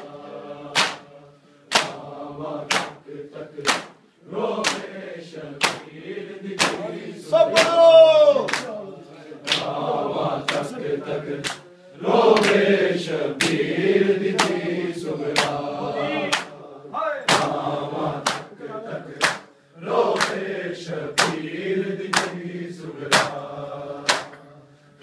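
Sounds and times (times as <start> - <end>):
drawn-out sung line: 0.0 - 25.0
men chanting a lament: 0.0 - 25.0
hands slapping chests: 0.7 - 1.1, 1.7 - 2.0, 2.6 - 4.0, 4.6 - 5.9, 6.6 - 8.8, 9.4 - 9.8, 10.4 - 10.8, 11.4 - 11.7, 12.3 - 12.7, 13.3 - 13.7, 14.3 - 14.7, 15.3 - 15.7, 16.3 - 16.6, 17.3 - 19.5, 20.1 - 20.5, 21.1 - 22.4, 23.0 - 24.4.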